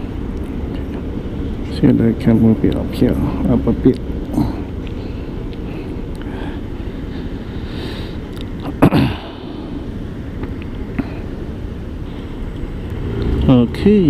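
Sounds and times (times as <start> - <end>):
street traffic rumble: 0.0 - 14.0
person sneezing: 8.7 - 9.5.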